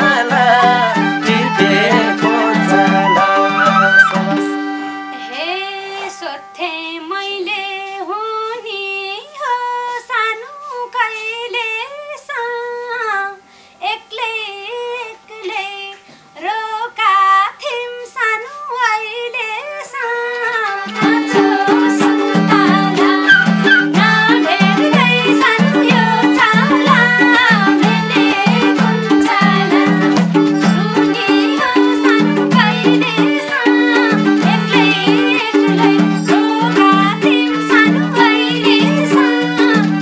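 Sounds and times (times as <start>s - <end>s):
harmonium and hand drum backing: 0.0s - 7.5s, 20.2s - 40.0s
bending gliding melody: 1.3s - 4.5s.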